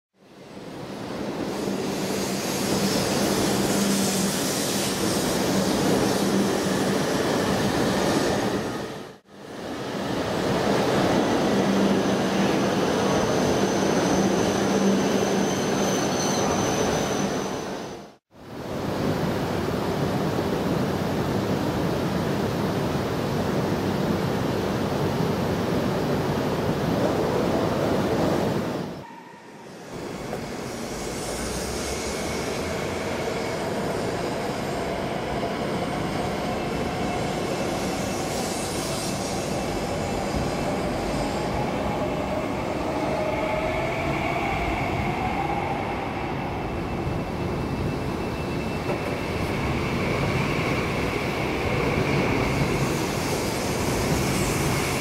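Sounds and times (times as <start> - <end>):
faint train whine: 0.2 - 55.0
high-speed train rushing past: 0.2 - 55.0.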